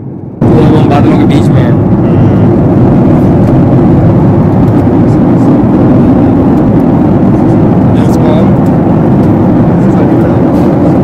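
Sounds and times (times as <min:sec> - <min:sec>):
airflow past fuselage: 0:00.0 - 0:11.0
jet engines rushing: 0:00.0 - 0:11.0.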